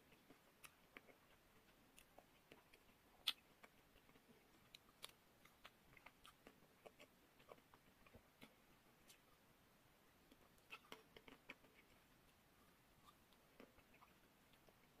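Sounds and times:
chewing chocolate-coated ice cream: 0:00.0 - 0:09.3, 0:10.3 - 0:12.4.

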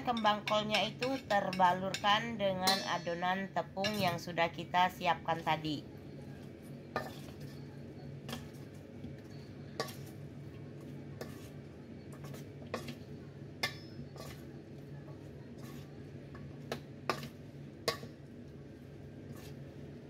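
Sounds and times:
metal spoon scraping bowl: 0:11.2 - 0:13.1, 0:13.7 - 0:14.6, 0:15.5 - 0:16.1.

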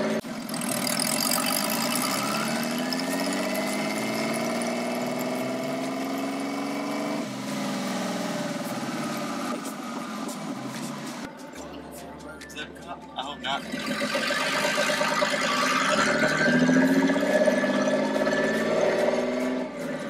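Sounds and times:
engine revving: 0:00.0 - 0:11.3, 0:13.4 - 0:20.0
turbo whistling: 0:13.3 - 0:19.9.

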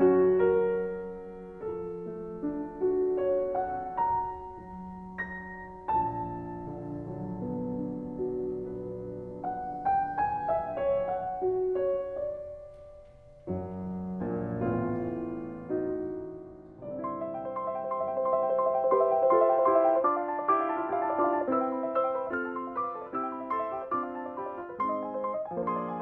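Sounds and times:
solo piano playing slowly: 0:00.0 - 0:26.0.

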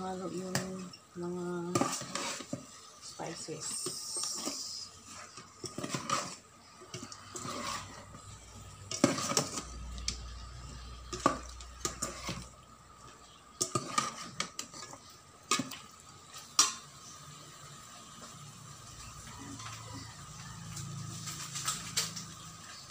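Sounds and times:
metal ladle scraping pot: 0:01.7 - 0:02.8, 0:03.6 - 0:12.7, 0:13.3 - 0:17.1.

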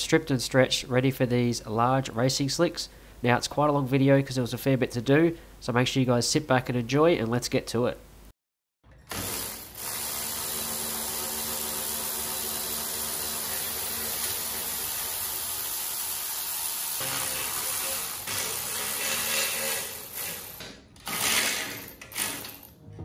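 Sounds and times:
electric ratchet whirring: 0:09.1 - 0:22.7.

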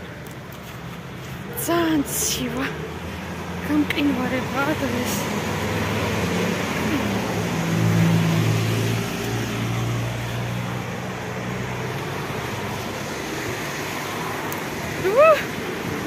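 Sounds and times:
passing vehicle engine hum: 0:00.0 - 0:16.0
traffic noise: 0:00.0 - 0:16.0.

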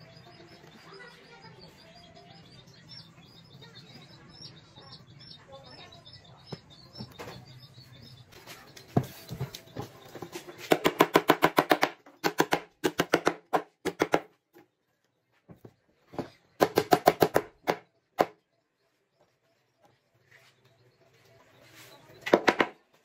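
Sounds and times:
hammer tapping on plywood box: 0:10.7 - 0:14.4, 0:16.2 - 0:18.4.

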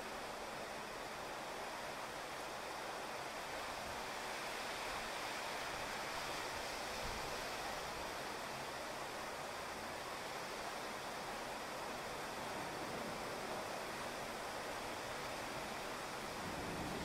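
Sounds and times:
rain on a wet street: 0:00.0 - 0:17.0.

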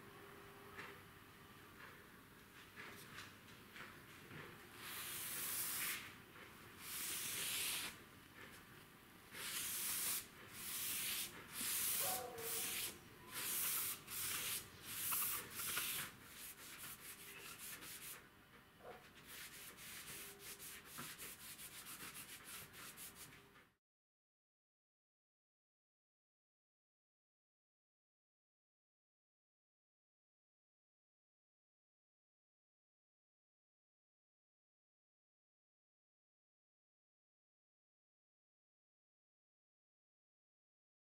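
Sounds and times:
sponge swishing on wood: 0:09.4 - 0:18.2, 0:19.2 - 0:23.3.

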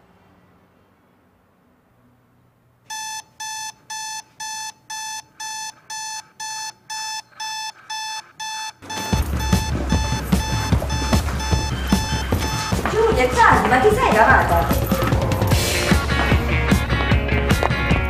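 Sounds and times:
alarm clock beeping: 0:02.9 - 0:15.8.

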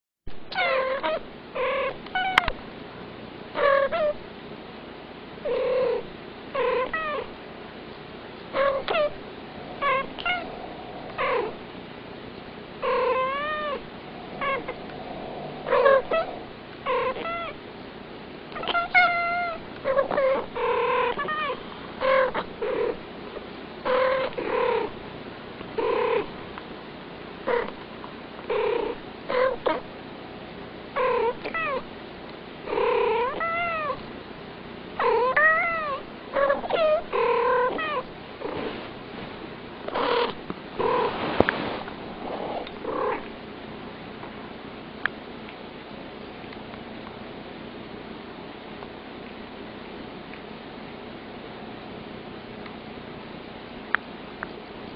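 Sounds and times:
cats chirping meows: 0:08.6 - 0:11.6, 0:12.9 - 0:17.6, 0:18.6 - 0:22.5, 0:33.2 - 0:34.0, 0:35.1 - 0:38.1.

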